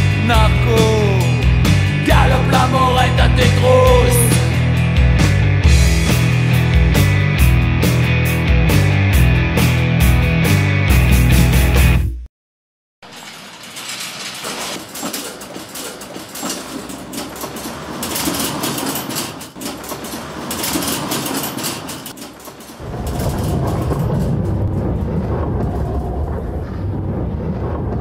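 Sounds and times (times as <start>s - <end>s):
metal roller shutter rolling down: 13.0s - 26.3s
metal cage rattling over cobblestones: 13.0s - 28.0s.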